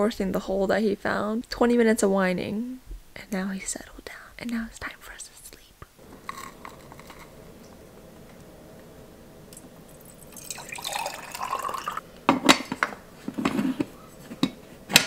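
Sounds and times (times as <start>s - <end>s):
water pouring into pot: 9.5s - 12.0s.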